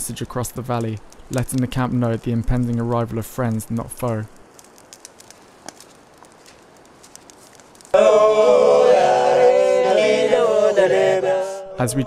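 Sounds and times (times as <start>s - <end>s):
men singing together unaccompanied: 8.0s - 11.7s.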